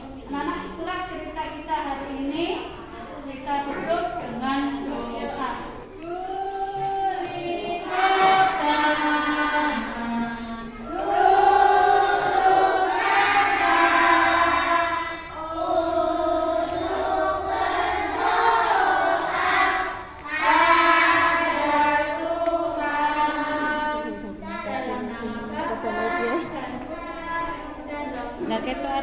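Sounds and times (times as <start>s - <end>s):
women singing: 4.6s - 29.0s
children singing: 4.8s - 29.0s.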